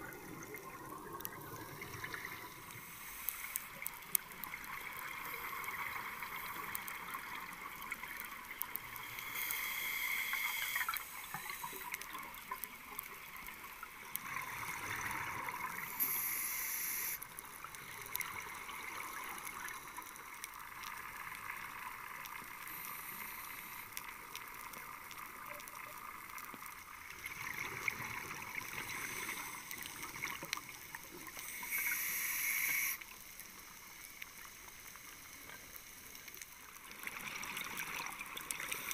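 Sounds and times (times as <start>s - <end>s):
underwater exhaust bubbles rushing: 0.0s - 2.7s
crackle of fine clicks: 0.0s - 38.9s.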